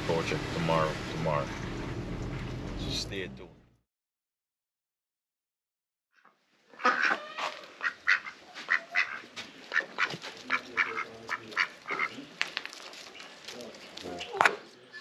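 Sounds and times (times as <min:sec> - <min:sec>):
ducks quacking: 0:06.7 - 0:12.3.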